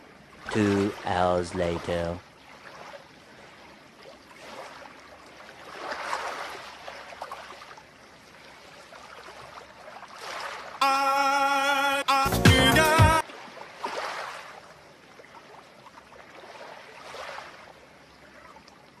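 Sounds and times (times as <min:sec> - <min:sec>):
sea waves washing on shore: 0:00.0 - 0:11.6.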